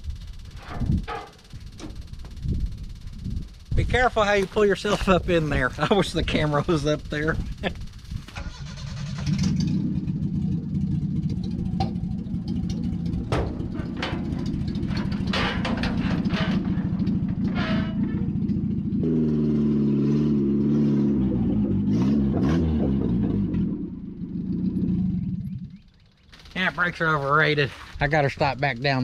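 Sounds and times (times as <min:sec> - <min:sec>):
sharp clatters and knocks: 0:00.0 - 0:05.2, 0:05.8 - 0:19.0, 0:26.2 - 0:28.0
truck engine revving: 0:03.2 - 0:25.9.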